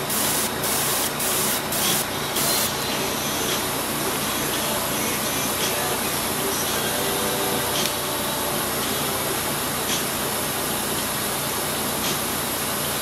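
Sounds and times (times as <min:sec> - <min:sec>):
airbrush air hissing: 0:00.0 - 0:07.0.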